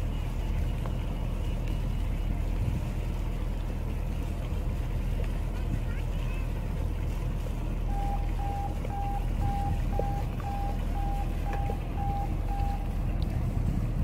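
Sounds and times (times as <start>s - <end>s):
boat engine idling: 0.0s - 14.0s
short electronic beeps: 7.9s - 12.9s.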